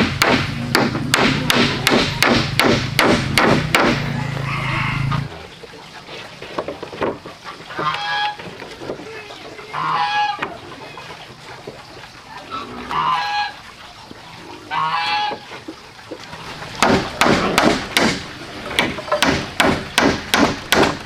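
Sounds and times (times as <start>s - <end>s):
fowl calling: 4.1s - 5.3s, 7.7s - 8.5s, 9.3s - 11.1s, 12.4s - 13.7s, 14.6s - 15.5s.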